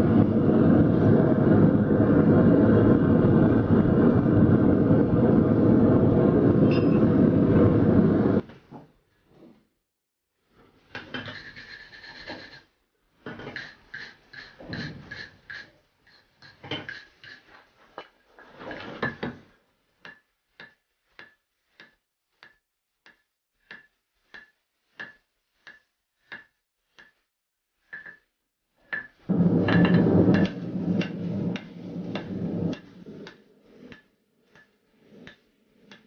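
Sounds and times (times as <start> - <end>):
rushing noise: 0.0 - 8.4, 29.3 - 33.2.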